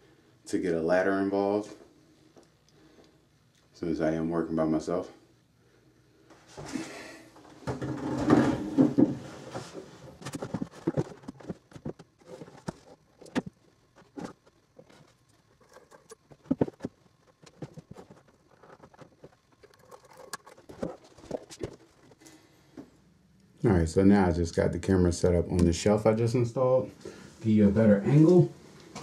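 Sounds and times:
rustling and bumping of furniture: 6.5s - 19.5s.

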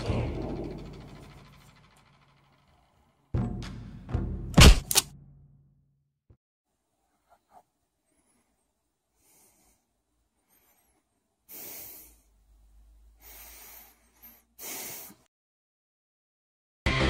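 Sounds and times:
person breathing heavily: 8.0s - 15.3s.

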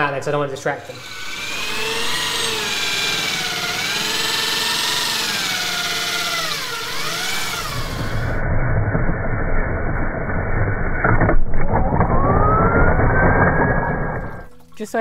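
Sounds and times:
drill cutting through acrylic: 0.4s - 8.4s.

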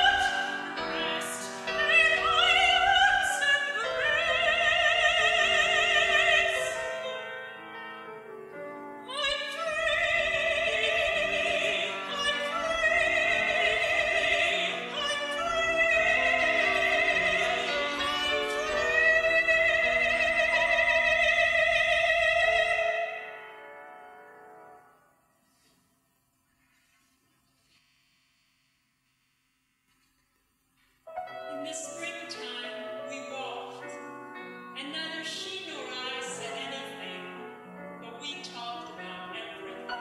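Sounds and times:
soprano singing with vibrato: 0.0s - 7.6s, 8.9s - 23.4s, 31.1s - 40.0s
piano accompaniment: 0.0s - 25.1s, 31.1s - 40.0s.

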